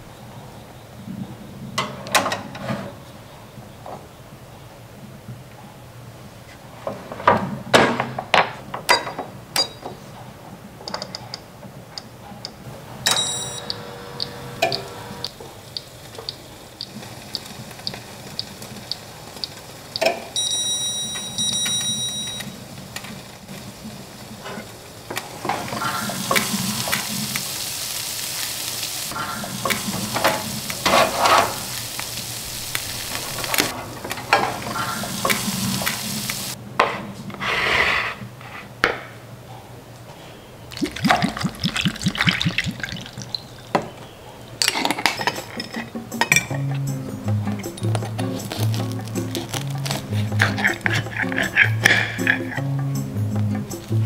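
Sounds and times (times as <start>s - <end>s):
toast sizzling: 13.0s - 36.6s, 40.7s - 43.9s, 44.6s - 54.0s
short ringing tone: 13.1s - 13.9s, 20.4s - 22.5s
timer ticking: 13.1s - 22.4s.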